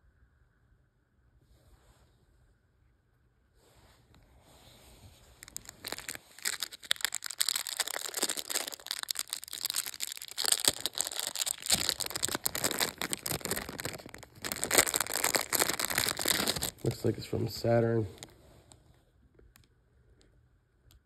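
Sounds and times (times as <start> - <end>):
paper wrapping crinkling: 5.2 - 18.4
plastic bag crinkling: 5.2 - 18.4.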